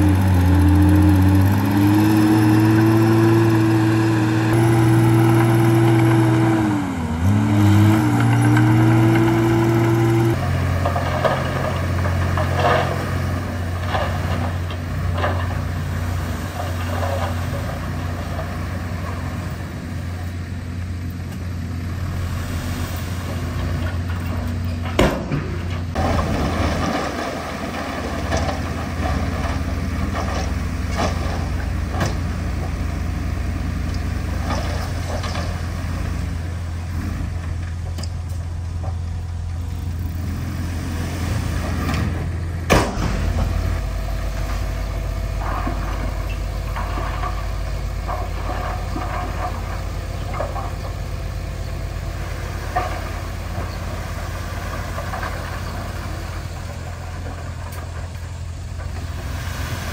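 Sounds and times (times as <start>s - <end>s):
heavy diesel engine running: 0.0s - 59.9s.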